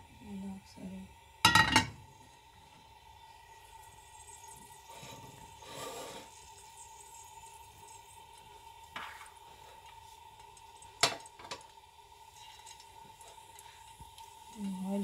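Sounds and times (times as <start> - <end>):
kitchenware clinking: 1.5 - 2.0.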